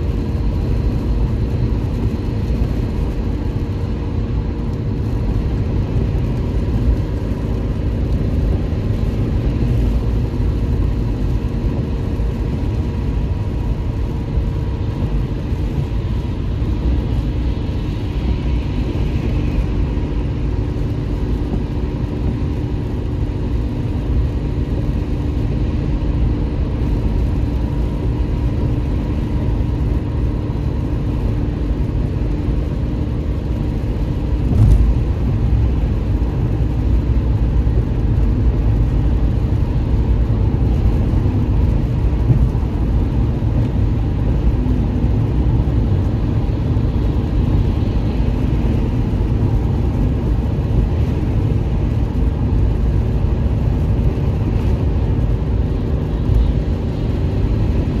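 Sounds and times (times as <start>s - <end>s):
car tyres and engine rumble: 0.0s - 58.0s.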